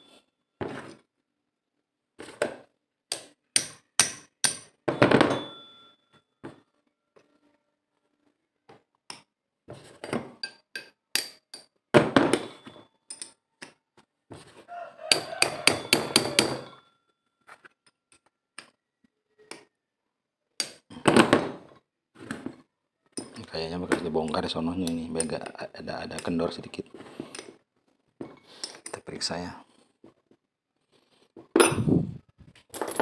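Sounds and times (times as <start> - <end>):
wrench clinking on metal bolts: 12.3 - 13.4, 15.1 - 16.8, 23.2 - 23.6.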